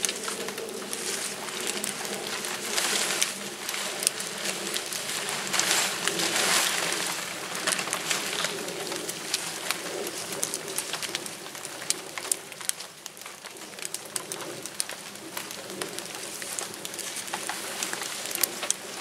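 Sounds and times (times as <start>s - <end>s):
nylon tent fabric rustling: 0.0s - 9.4s.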